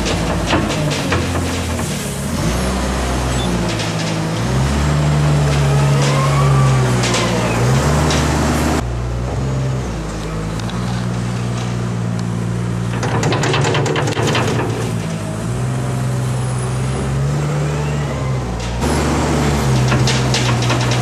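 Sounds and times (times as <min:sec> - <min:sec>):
diesel engine under load: 0:00.0 - 0:21.0
light clatters: 0:18.5 - 0:21.0.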